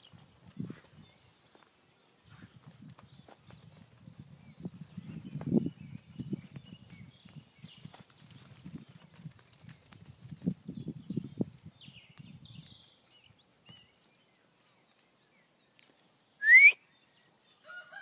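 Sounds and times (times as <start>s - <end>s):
llama footsteps on dirt: 0.0s - 16.2s
small birds chirping: 0.0s - 17.9s
short rising whistle: 16.4s - 16.8s.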